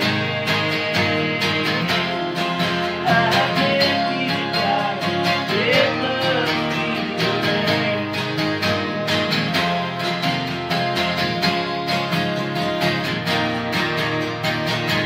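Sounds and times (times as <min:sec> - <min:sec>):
person singing: 0:00.0 - 0:08.9
acoustic guitars strumming: 0:00.0 - 0:15.0.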